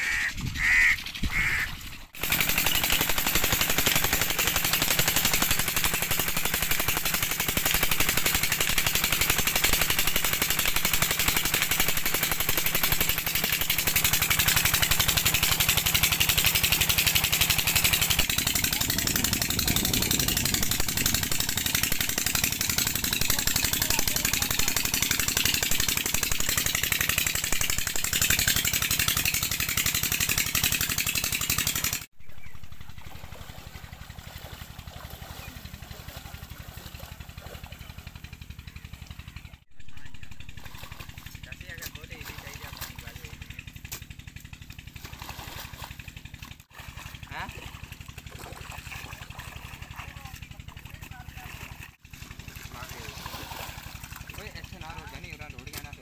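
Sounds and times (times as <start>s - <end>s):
diesel engine chugging: 0.0s - 56.0s
water gushing from pipe: 1.4s - 32.0s, 44.9s - 55.3s.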